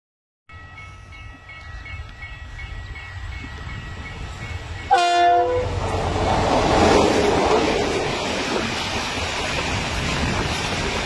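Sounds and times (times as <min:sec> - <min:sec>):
freight train rumble: 0:00.5 - 0:11.0
locomotive horn chord: 0:04.9 - 0:05.8.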